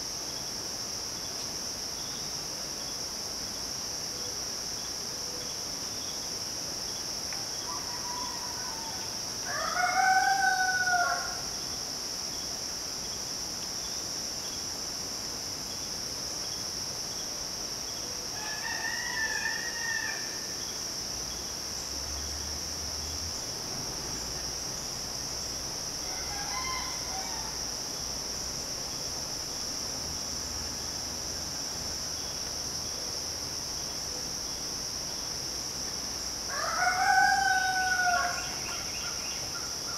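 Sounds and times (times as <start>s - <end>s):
insects droning: 0.0s - 39.9s
rooster crowing: 7.6s - 11.4s, 18.4s - 20.5s, 26.0s - 27.6s, 36.5s - 38.9s.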